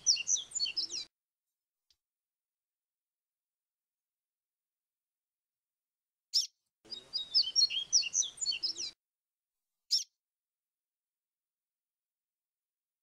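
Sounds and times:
bird chirp: 0.0s - 1.1s, 6.3s - 9.0s, 9.9s - 10.2s
bird warbling song: 0.0s - 1.1s, 6.3s - 9.0s, 9.9s - 10.1s.

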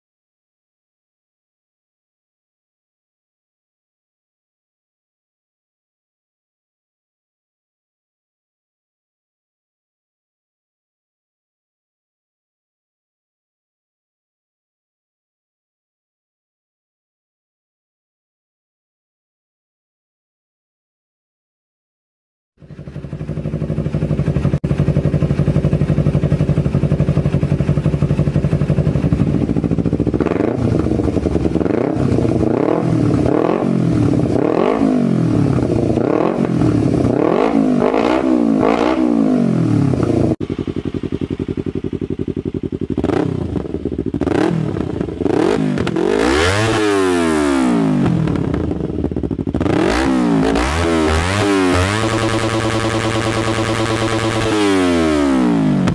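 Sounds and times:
motorcycle engine idling and revving: 22.6s - 55.9s.

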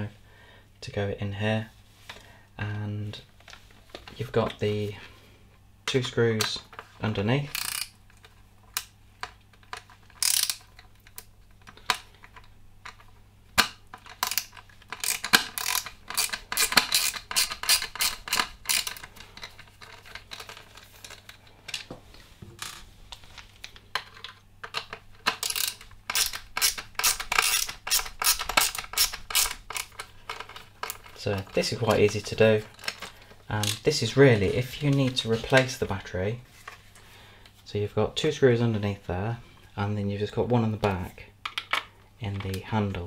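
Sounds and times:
screwdriver turning screws clicking: 7.6s - 7.9s, 10.2s - 11.3s, 14.0s - 19.1s, 24.7s - 31.2s.

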